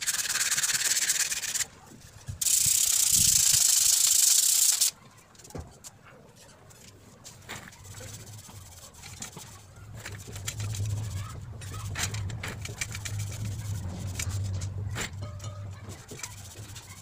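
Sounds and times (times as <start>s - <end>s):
rag rubbing on metal: 7.3s - 17.0s.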